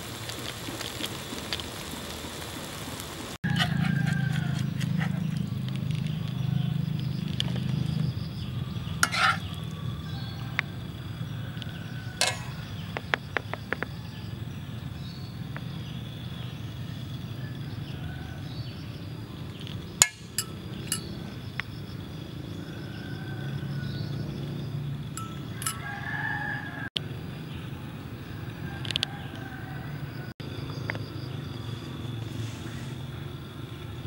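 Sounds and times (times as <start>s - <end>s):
metal spatula clinking on frying pan: 9.0s - 9.4s, 20.0s - 21.1s, 25.2s - 25.9s.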